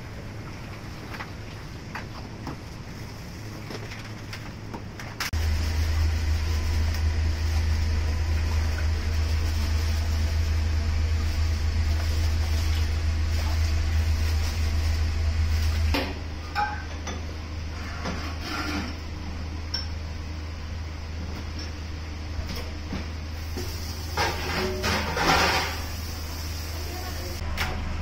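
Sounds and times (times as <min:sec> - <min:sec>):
low hum: 0:05.3 - 0:18.1
dishes and pans clinking: 0:16.0 - 0:17.3, 0:24.2 - 0:25.9.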